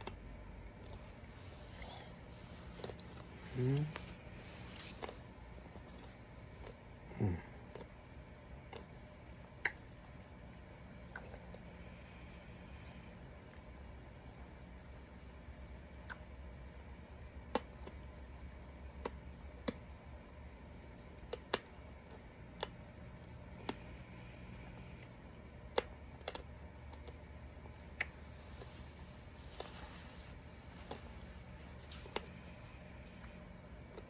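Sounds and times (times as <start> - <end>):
low room hum: 0.0 - 34.0
mouth clicks and smacks: 9.5 - 10.3, 11.0 - 11.7, 16.0 - 16.3.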